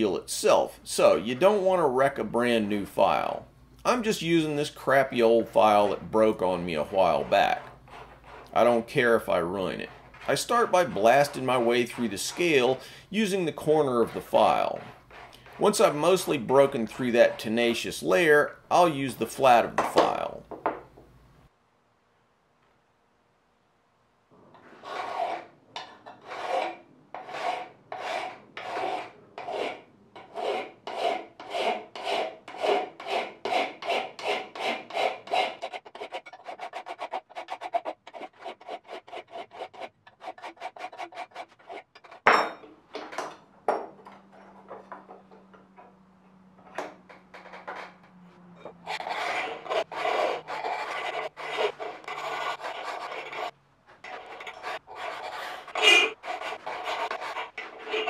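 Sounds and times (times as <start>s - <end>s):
file rasping on steel blade: 5.2s - 12.9s, 13.5s - 17.6s, 24.8s - 42.2s, 48.7s - 58.0s.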